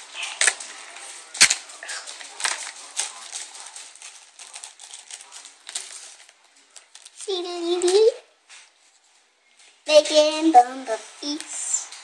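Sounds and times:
paper backing peeling: 0.0s - 8.8s.

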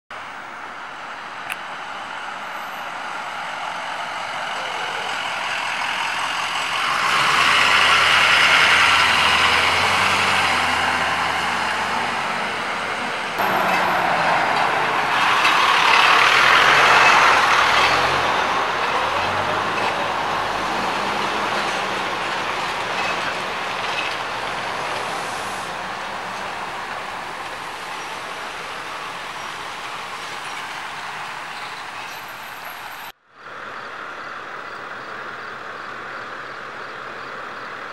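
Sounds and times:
trucks driving past: 0.2s - 37.9s.

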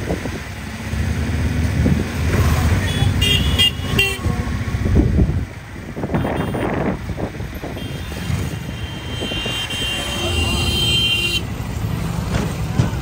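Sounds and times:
road traffic: 0.0s - 13.0s
vehicle horn: 2.8s - 4.3s, 6.1s - 6.9s, 7.6s - 11.5s.

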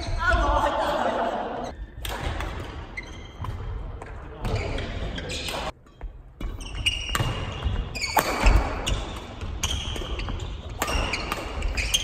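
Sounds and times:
racket hitting shuttlecock: 2.0s - 4.6s, 5.3s - 12.0s
shoes squeaking: 2.8s - 12.0s.

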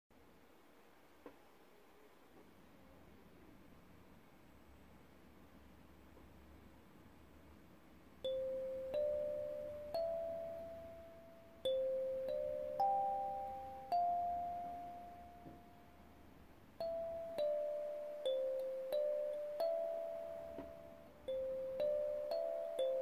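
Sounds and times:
kalimba notes plucked: 8.3s - 15.8s, 16.8s - 23.0s.

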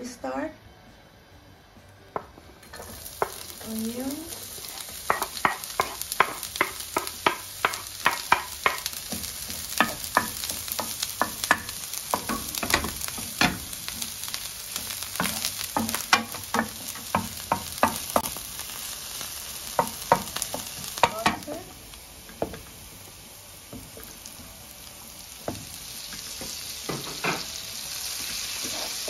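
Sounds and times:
onions sizzling in oil: 2.2s - 29.0s.

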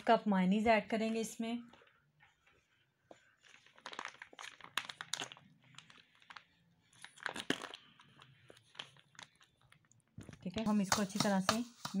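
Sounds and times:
plastic pouch crinkling: 3.3s - 10.6s.

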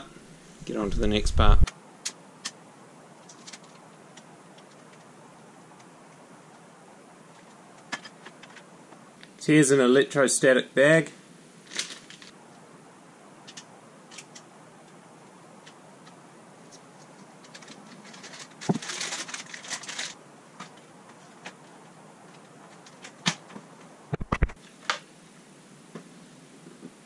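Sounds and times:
plastic bag crinkling: 11.6s - 12.3s, 17.0s - 21.7s.

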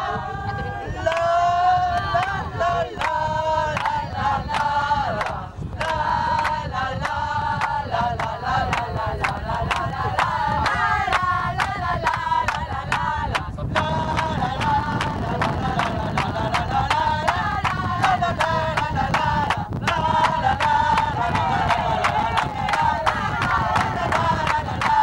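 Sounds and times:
group singing a chant: 0.0s - 25.0s
sharp rhythmic beats: 14.0s - 25.0s.

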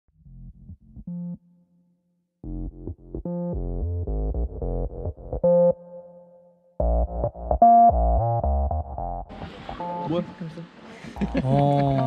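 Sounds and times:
electronic synthesizer music: 2.4s - 12.0s.

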